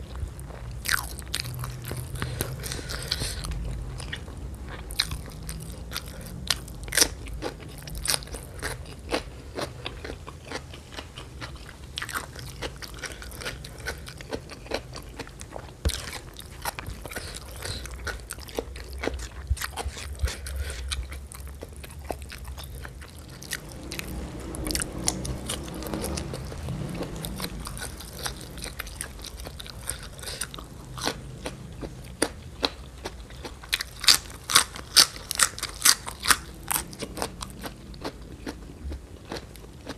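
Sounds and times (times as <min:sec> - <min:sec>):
crunching raw vegetables: 0:00.0 - 0:39.9
wet chewing: 0:00.0 - 0:39.9.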